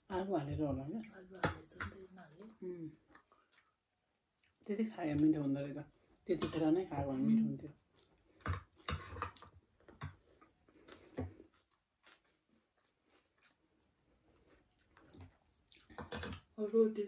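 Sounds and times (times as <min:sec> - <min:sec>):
chewing and mouth noises: 0:03.0 - 0:04.7, 0:07.9 - 0:16.5.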